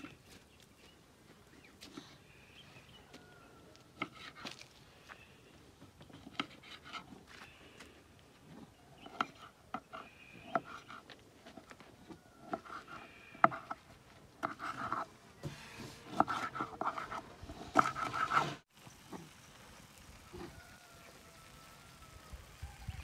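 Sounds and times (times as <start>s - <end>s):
knife chopping on wooden board: 12.4s - 13.8s, 14.4s - 15.1s, 16.1s - 18.6s.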